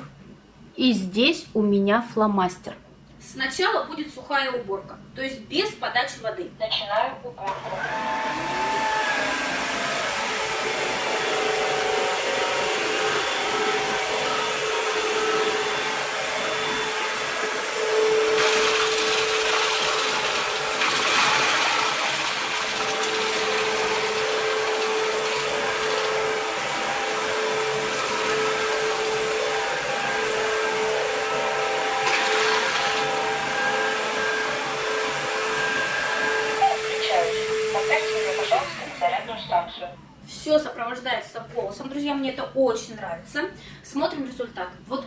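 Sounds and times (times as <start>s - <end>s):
vacuum cleaner motor whine: 7.4s - 40.2s
vacuum sucking up crumbs: 7.5s - 36.1s.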